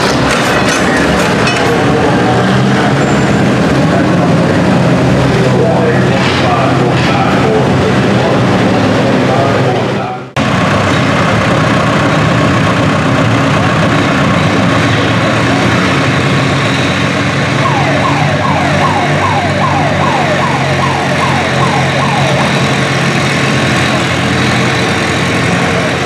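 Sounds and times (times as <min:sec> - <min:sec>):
tractor engine under load: 0:00.0 - 0:26.0
falling wail siren: 0:17.6 - 0:23.2.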